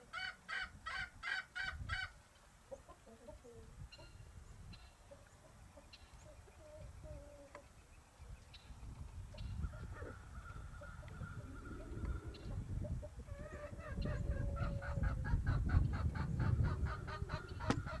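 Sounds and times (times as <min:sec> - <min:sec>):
chickens clucking: 0:00.0 - 0:18.0
wind rumble on microphone: 0:00.7 - 0:02.2, 0:06.4 - 0:07.3, 0:08.2 - 0:18.0.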